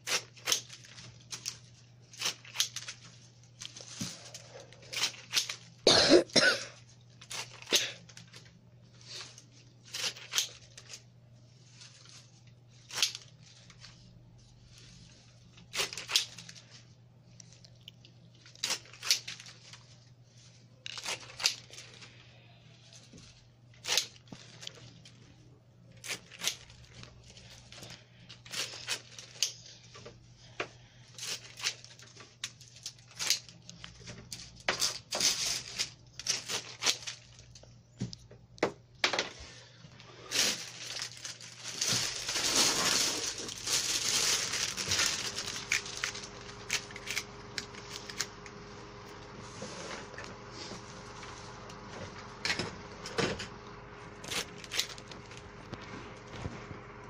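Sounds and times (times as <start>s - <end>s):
leaves stripped from stems: 0.0s - 5.7s, 7.1s - 11.0s, 11.7s - 14.1s, 14.7s - 16.8s, 17.4s - 22.2s, 25.9s - 29.7s, 30.9s - 38.2s, 40.2s - 48.6s, 54.2s - 56.4s
steady low hum: 0.0s - 57.0s.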